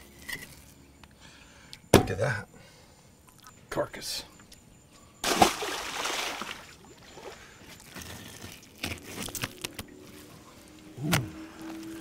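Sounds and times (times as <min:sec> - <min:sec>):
splash into water: 0:05.2 - 0:06.8.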